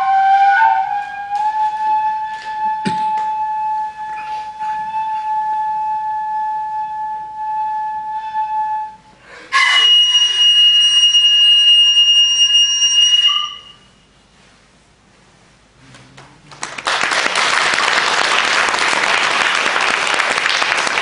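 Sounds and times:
flute playing: 0.0s - 14.1s.

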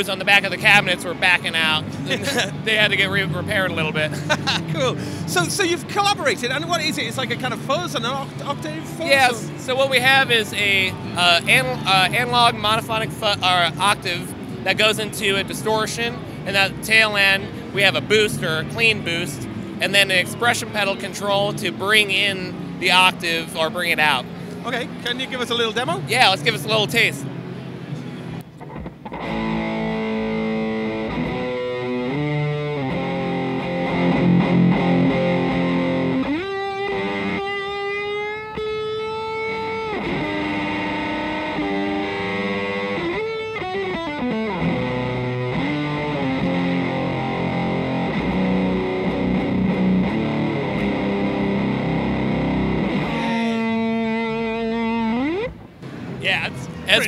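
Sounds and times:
distorted electric guitar: 28.4s - 57.0s.

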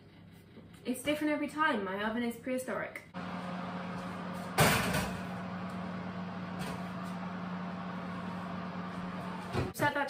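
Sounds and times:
fan oven humming: 3.1s - 9.7s.

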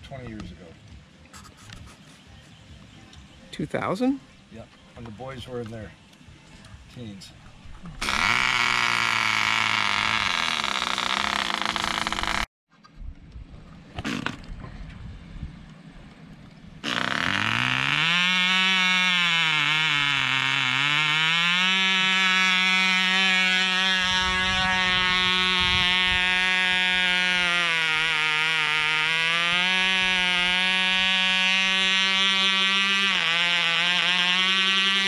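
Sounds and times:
model engine buzzing: 8.0s - 12.5s, 16.8s - 35.0s.

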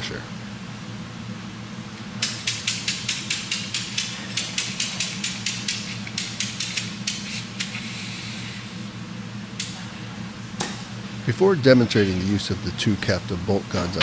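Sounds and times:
compressed gas hissing: 5.6s - 8.9s.

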